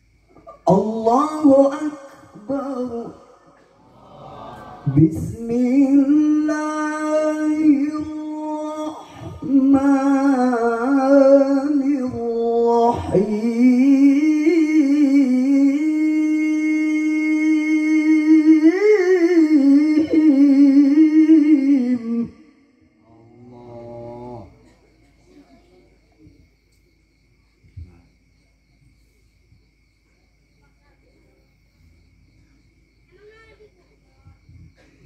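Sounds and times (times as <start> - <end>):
man chanting melodically over loudspeaker: 0.6 - 24.8.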